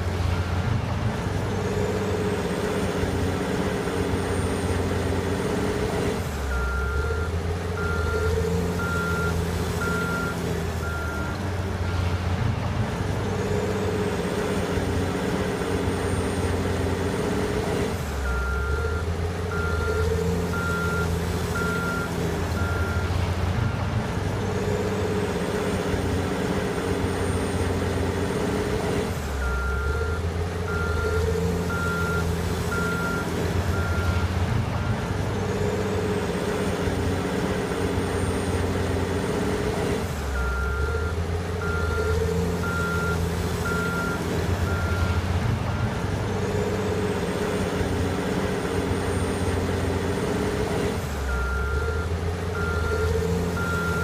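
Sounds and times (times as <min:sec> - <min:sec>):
wheel loader diesel engine: 0:00.0 - 0:54.0
reverse alarm beeps: 0:18.3 - 0:23.1, 0:29.4 - 0:34.2, 0:40.4 - 0:45.2, 0:51.3 - 0:54.0.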